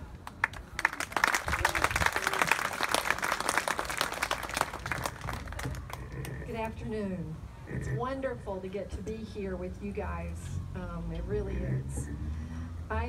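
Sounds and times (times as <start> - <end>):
audience applauding: 0.2 - 6.3.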